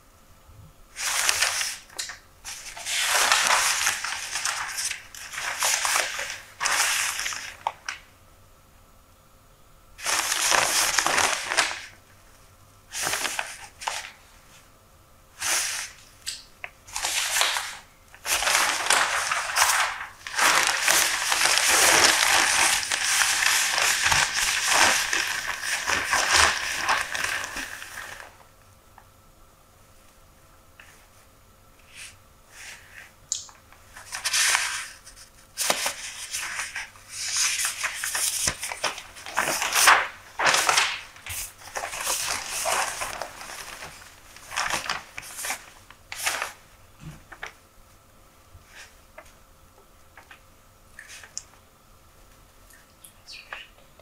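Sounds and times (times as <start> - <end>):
newspaper pages rustling: 1.0 - 8.0, 10.0 - 12.0, 12.9 - 14.2, 16.8 - 28.4, 33.9 - 47.6.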